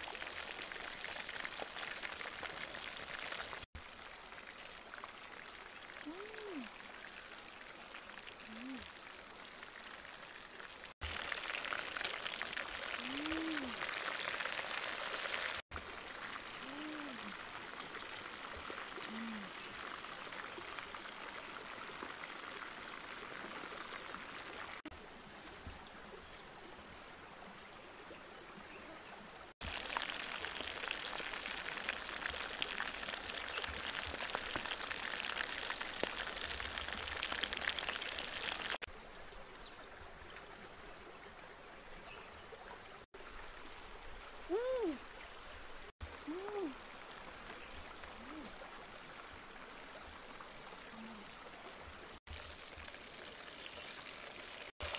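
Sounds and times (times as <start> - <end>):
stream running over rocks: 0.0 - 54.9
chicken sizzling in hot oil: 10.8 - 13.0, 13.8 - 15.6, 29.6 - 38.9.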